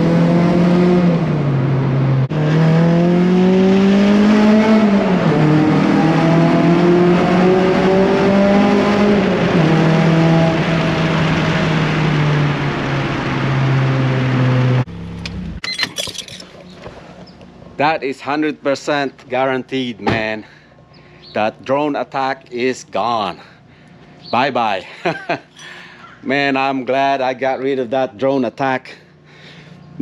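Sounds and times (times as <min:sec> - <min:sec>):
car engine and exhaust revving: 0:00.0 - 0:17.8.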